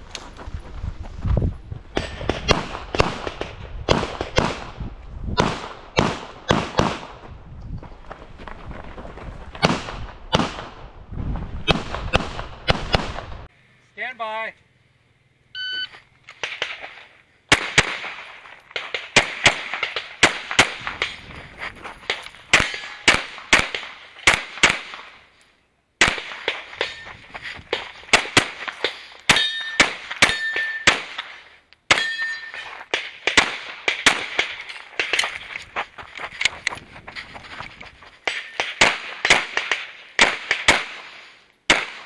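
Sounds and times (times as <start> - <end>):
shot timer beep: 15.6 - 15.9
rapid handgun fire: 17.5 - 21.0
bullets ringing steel targets: 22.5 - 23.4, 26.4 - 27.2, 28.6 - 31.3, 31.9 - 35.6.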